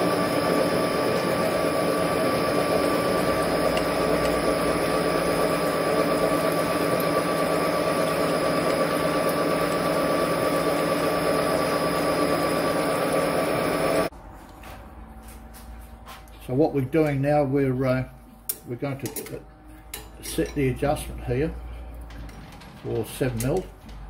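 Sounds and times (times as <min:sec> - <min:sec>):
metal lathe humming: 0:00.0 - 0:14.1.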